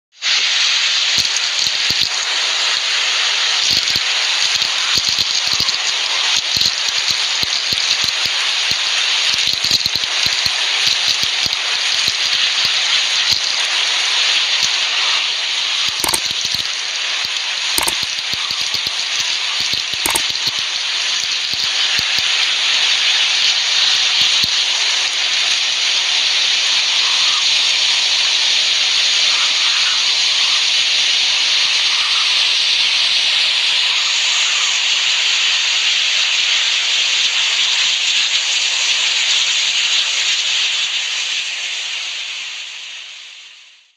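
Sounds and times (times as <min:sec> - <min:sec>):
heavy rain pouring: 0:00.6 - 0:28.5
sharp taps: 0:15.9 - 0:20.6.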